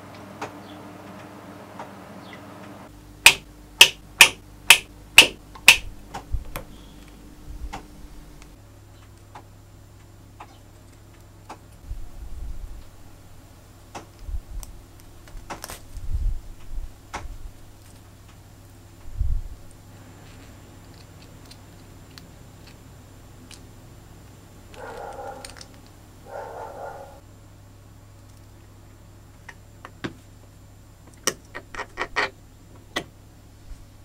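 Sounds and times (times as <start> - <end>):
metal parts handled: 24.8 - 26.0.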